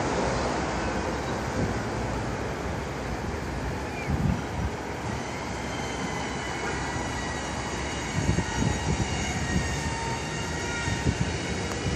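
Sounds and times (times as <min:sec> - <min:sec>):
train wheels rumbling on rail: 0:00.0 - 0:11.9
high wheel squeal: 0:03.7 - 0:11.9.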